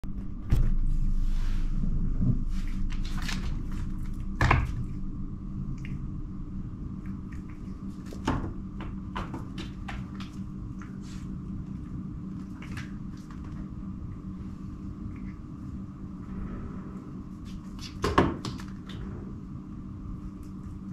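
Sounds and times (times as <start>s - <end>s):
faint steady hum: 0.0s - 20.9s.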